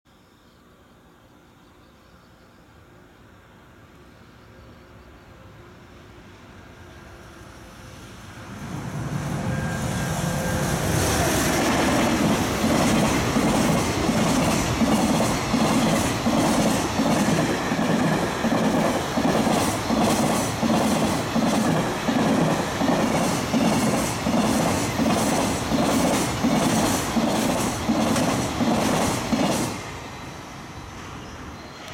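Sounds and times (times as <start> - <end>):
electric locomotive passing: 2.5 - 31.9
train wheels clickety-clack: 9.6 - 30.0.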